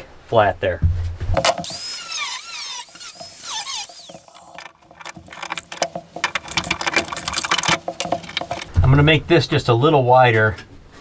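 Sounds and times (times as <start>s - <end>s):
angle grinder squealing on metal: 1.6s - 5.6s
rapid rattling clatter: 3.0s - 8.9s.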